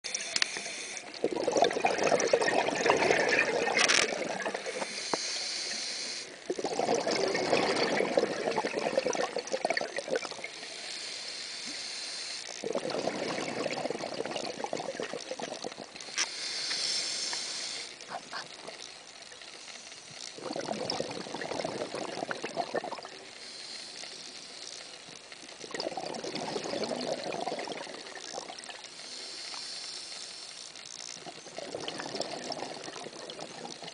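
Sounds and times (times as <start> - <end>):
regulator inhale hiss: 0.1 - 1.2, 4.6 - 6.4, 10.6 - 12.6, 16.0 - 18.2, 23.2 - 25.0, 28.9 - 30.8
exhaled bubbles rushing: 1.2 - 4.8, 6.5 - 10.5, 12.6 - 16.0, 20.4 - 23.2, 25.6 - 28.8, 31.3 - 33.9.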